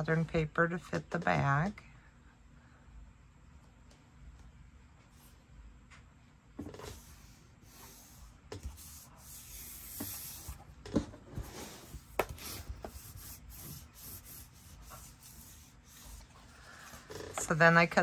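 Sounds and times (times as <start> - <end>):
paper rubbed by hand: 6.9 - 10.6, 11.4 - 17.1.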